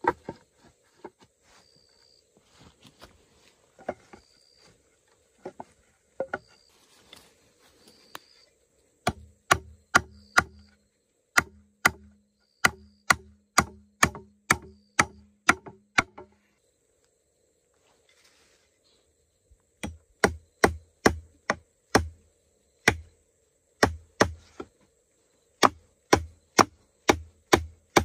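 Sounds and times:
hand tool chopping strikes: 9.0 - 10.6, 11.4 - 16.3, 23.8 - 24.4, 25.6 - 28.0.

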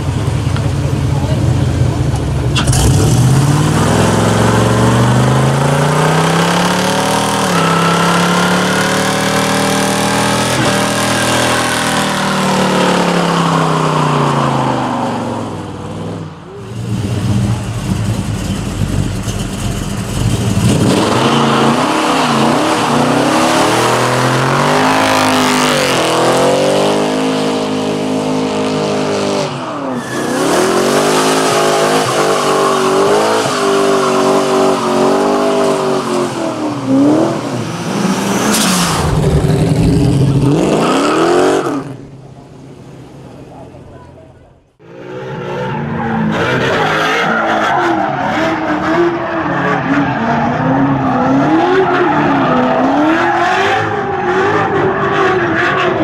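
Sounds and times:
car engine revving hard: 2.6 - 18.2, 20.1 - 42.0.

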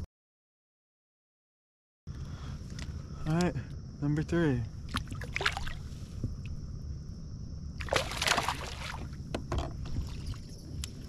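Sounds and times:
water splashing beside kayak: 4.9 - 6.4, 7.8 - 10.7.

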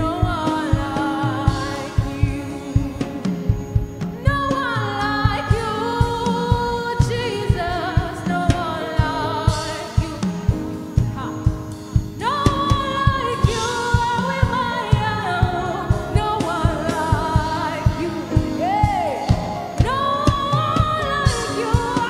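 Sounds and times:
person singing: 0.0 - 3.6, 12.2 - 22.0
music with steady beat: 0.0 - 22.0.

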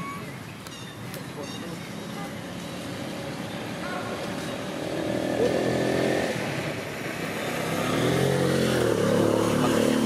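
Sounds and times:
passing vehicle engine: 2.0 - 10.0.

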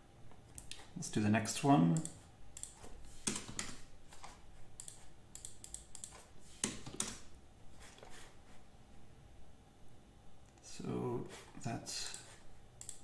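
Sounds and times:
computer keyboard typing: 1.9 - 7.2, 12.8 - 13.0.

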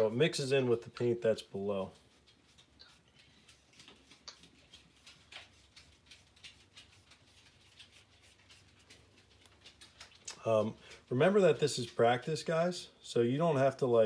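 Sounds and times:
paintbrush scratching on paper: 2.0 - 9.5.

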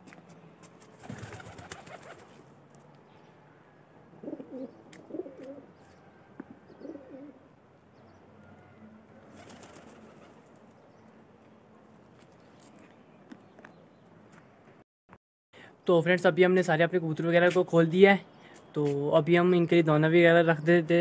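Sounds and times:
pigeons cooing: 4.2 - 5.7, 6.7 - 7.4.

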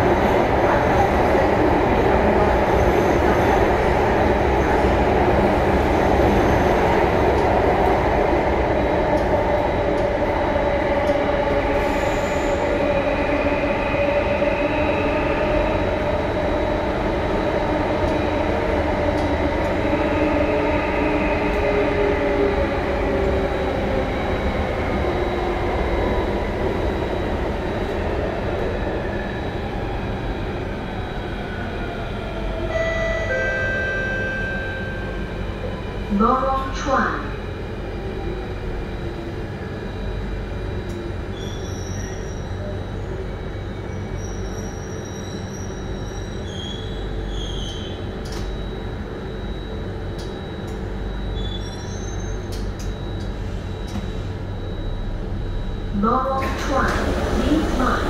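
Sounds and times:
train wheels rumbling on rail: 0.0 - 32.8, 55.5 - 58.0
train whine: 0.0 - 58.0.

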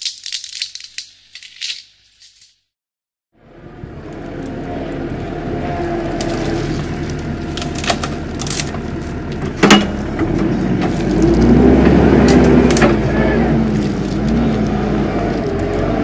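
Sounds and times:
wood snapping: 0.0 - 1.8, 6.1 - 13.1, 13.7 - 16.0
diesel engine running: 3.4 - 16.0
tree trunk cracking: 4.1 - 16.0.

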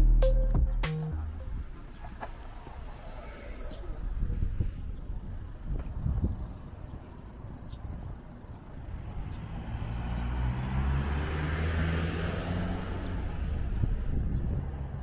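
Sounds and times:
car passing by: 8.9 - 15.0.

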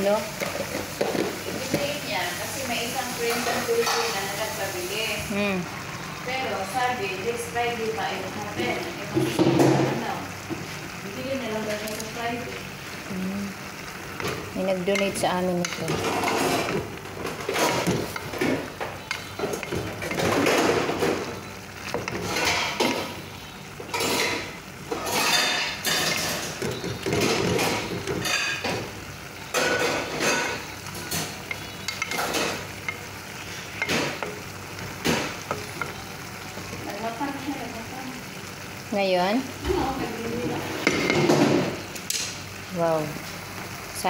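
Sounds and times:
food sizzling: 0.0 - 44.0.

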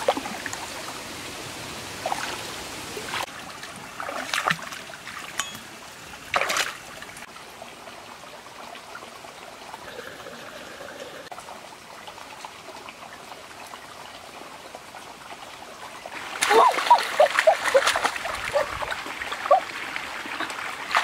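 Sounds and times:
stream trickling over rocks: 0.0 - 21.0
water splash: 6.3 - 7.0, 16.2 - 21.0.

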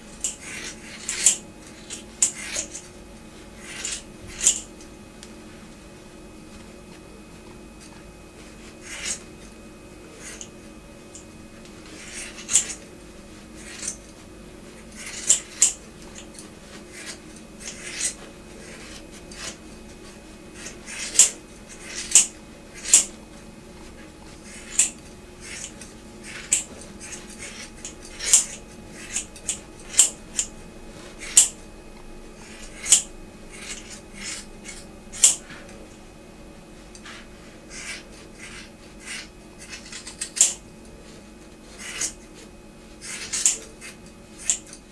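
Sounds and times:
faint steady hum: 0.0 - 44.9
scissors snipping hair: 0.2 - 2.9, 3.6 - 4.7, 8.8 - 9.2, 10.2 - 10.5, 12.0 - 12.9, 13.6 - 14.2, 14.8 - 19.6, 20.6 - 23.2, 24.4 - 30.6, 31.2 - 31.6, 32.4 - 35.7, 37.7 - 40.6, 41.8 - 42.3, 43.0 - 44.8.

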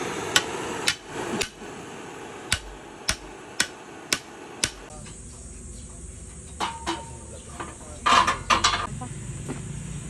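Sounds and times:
hammer striking hot steel: 0.0 - 5.2, 6.5 - 7.2.

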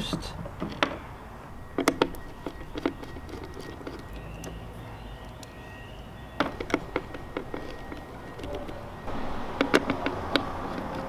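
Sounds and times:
metal clicks and taps: 9.5 - 11.0.

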